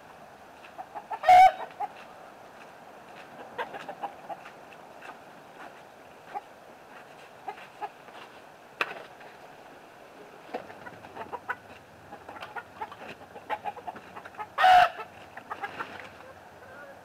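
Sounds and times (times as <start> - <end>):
chickens clucking: 0.6 - 2.2, 3.1 - 8.1, 10.2 - 17.0.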